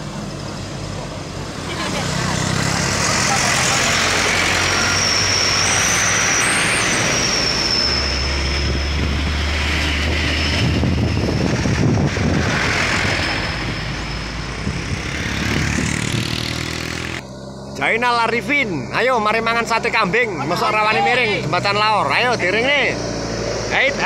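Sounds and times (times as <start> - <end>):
motorcycle passing: 0.0 - 7.5, 8.3 - 24.0
tyres rolling on asphalt: 0.0 - 17.6
diesel truck engines driving past: 0.0 - 24.0
thin high whine: 4.1 - 15.2.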